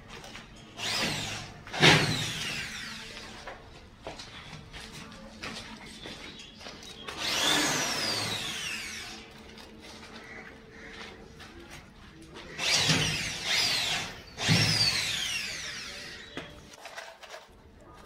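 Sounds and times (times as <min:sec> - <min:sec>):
power drill whining: 0:00.8 - 0:03.4, 0:07.1 - 0:09.4, 0:12.6 - 0:16.6.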